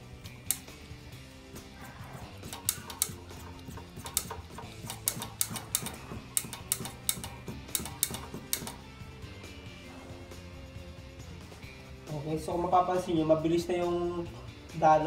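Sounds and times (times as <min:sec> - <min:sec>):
background music: 0:00.0 - 0:15.0
brake bleeder clicks and crackles: 0:02.4 - 0:08.8.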